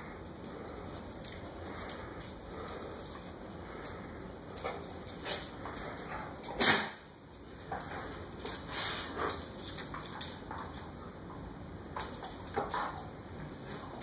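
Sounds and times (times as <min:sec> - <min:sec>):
loud sharp dog sound: 0:06.6 - 0:07.0.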